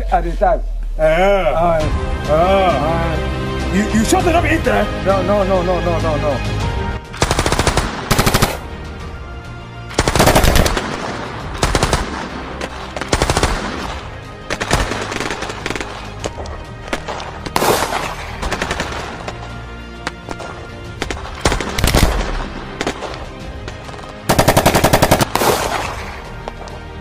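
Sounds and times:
automatic gunfire bursts: 7.2s - 8.6s, 10.0s - 11.0s, 24.3s - 25.9s.

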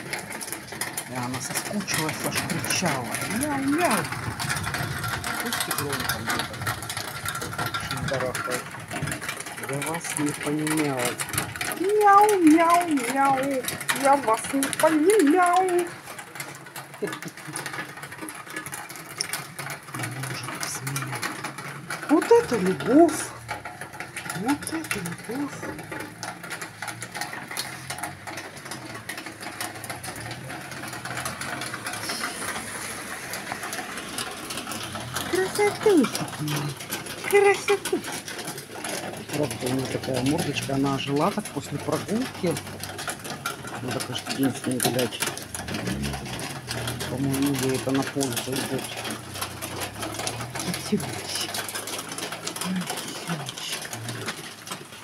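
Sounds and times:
cat purring: 29.6s - 54.4s.

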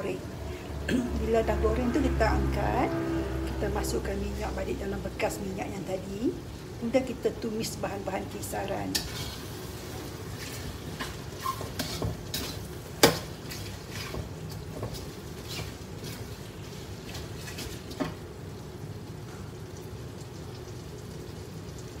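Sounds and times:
metal spatula scraping a pan: 8.9s - 16.5s.

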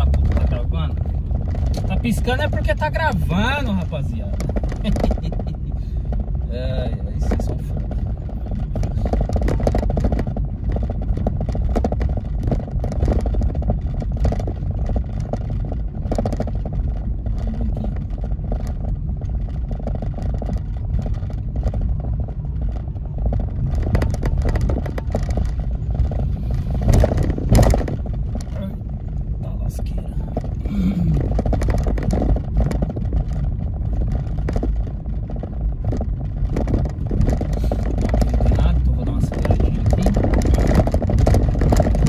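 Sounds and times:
car engine and tyre rumble: 0.0s - 42.0s.

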